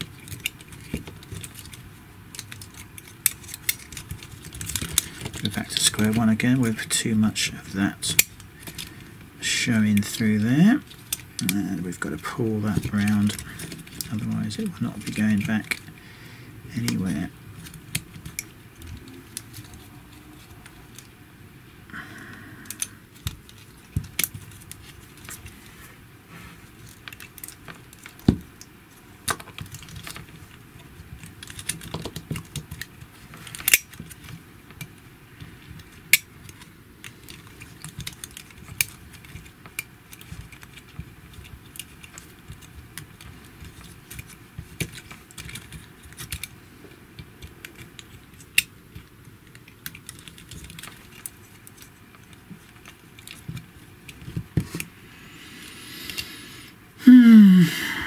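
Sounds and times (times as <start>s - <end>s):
plastic parts clicking: 0.0s - 7.0s, 8.0s - 9.0s, 9.8s - 16.0s, 16.7s - 21.1s, 22.6s - 25.6s, 26.7s - 46.6s, 47.2s - 54.9s.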